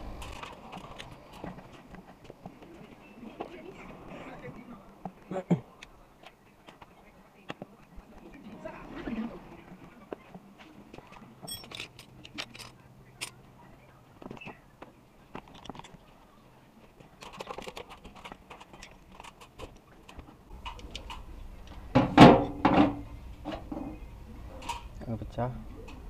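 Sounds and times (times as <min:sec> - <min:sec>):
hand tools rattling and clicking: 0:11.4 - 0:13.4, 0:17.2 - 0:21.2.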